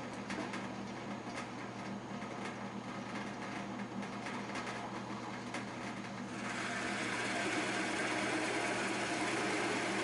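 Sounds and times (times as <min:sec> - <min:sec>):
drill press motor humming: 0:06.2 - 0:10.0
drill bit boring into wood: 0:06.4 - 0:10.0.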